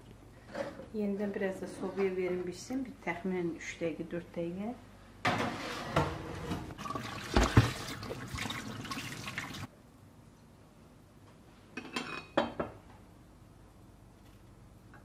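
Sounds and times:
tap water splashing in a sink: 6.8s - 9.7s
ceramic bowl set on counter: 11.7s - 12.8s.

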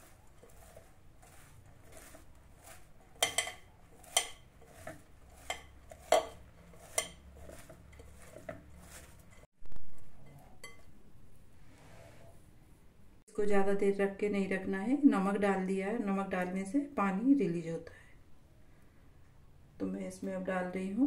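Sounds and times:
cabbage shreds rustling: 0.0s - 3.2s, 3.9s - 9.5s.

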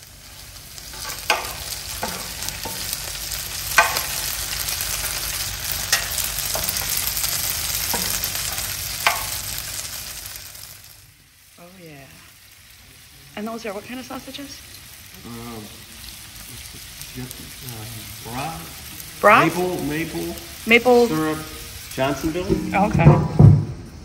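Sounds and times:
potatoes sizzling in a pan: 0.0s - 23.2s
spatula scraping and knocking pan: 0.9s - 3.1s, 3.7s - 4.4s, 5.7s - 9.5s, 22.2s - 23.8s.

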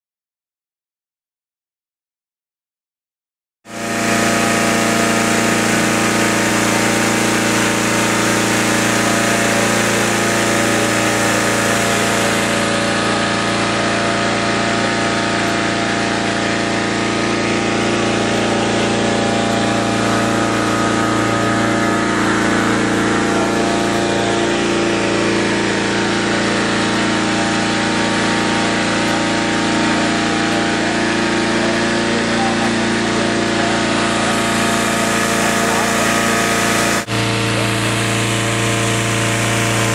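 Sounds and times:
engine-driven fan running: 3.7s - 39.9s.

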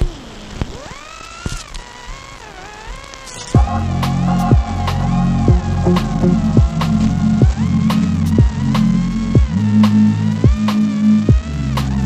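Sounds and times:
electronic music: 3.3s - 12.0s.

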